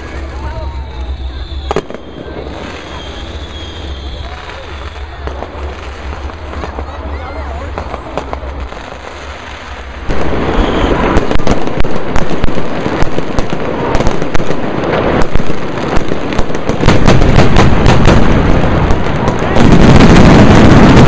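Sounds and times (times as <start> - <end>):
fireworks crackling and popping: 0.0 - 21.0
fireworks sharp bangs: 0.0 - 21.0.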